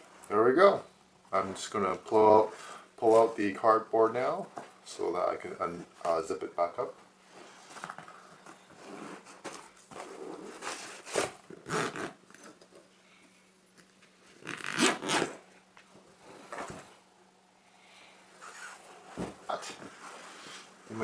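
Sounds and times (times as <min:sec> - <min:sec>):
zipper being pulled closed: 0:10.0 - 0:12.2, 0:14.4 - 0:15.4, 0:18.4 - 0:19.0
cushion cover rustling: 0:18.4 - 0:20.6.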